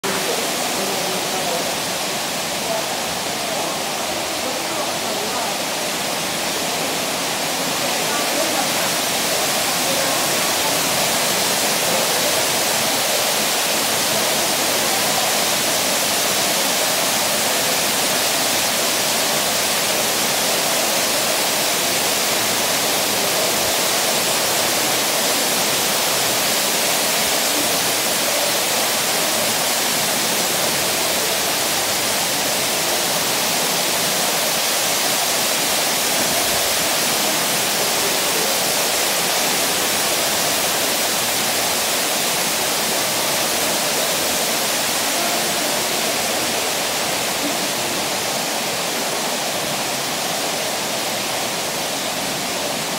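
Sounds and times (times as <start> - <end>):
waterfall rushing: 0.0 - 52.9.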